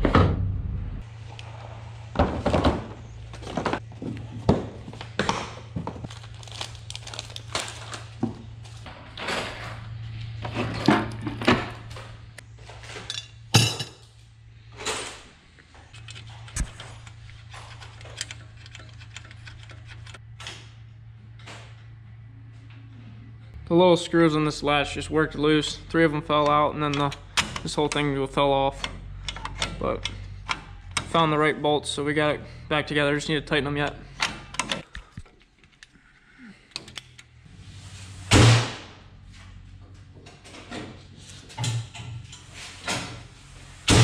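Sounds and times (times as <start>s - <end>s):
steady low hum: 0.0s - 44.0s
hand tools and metal parts clanking: 2.4s - 20.7s, 26.3s - 31.2s, 39.8s - 43.3s.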